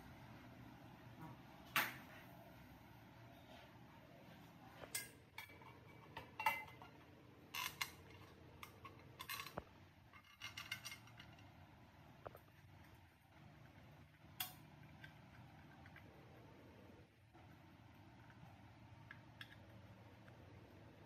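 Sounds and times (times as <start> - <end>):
metallic clinks and knocks: 4.9 - 11.5.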